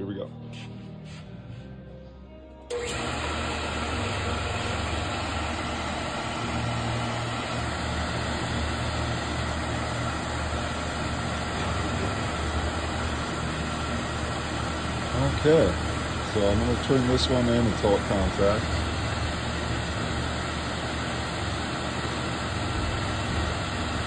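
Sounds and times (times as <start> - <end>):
lathe motor humming and whirring: 2.7 - 24.0.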